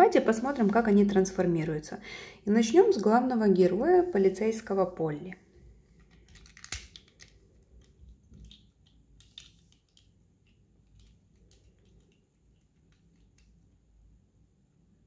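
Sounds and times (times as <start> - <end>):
plastic toy parts clicking: 6.0 - 13.6.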